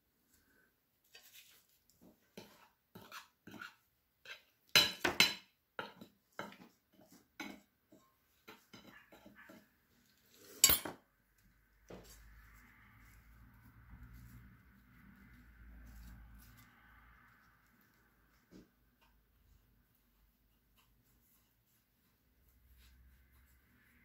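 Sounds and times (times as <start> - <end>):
cutlery clinking on plates: 8.5 - 9.6, 10.6 - 11.0.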